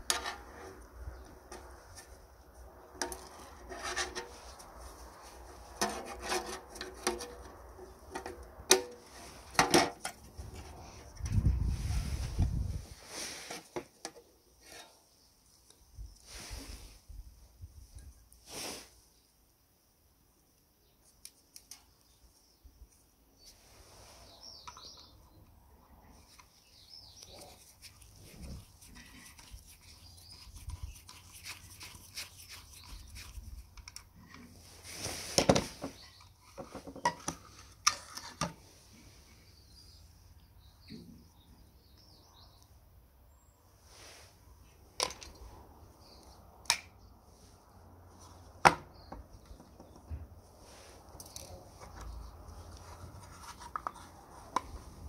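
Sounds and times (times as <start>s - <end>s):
small clicks and knocks of metal and wood: 21.0s - 22.1s, 33.7s - 34.5s.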